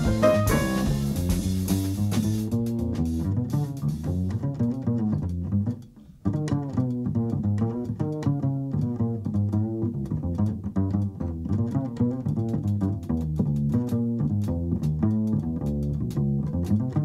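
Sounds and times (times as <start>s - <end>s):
light drums and cymbals: 0.0s - 4.2s
plucked double bass: 0.0s - 17.0s.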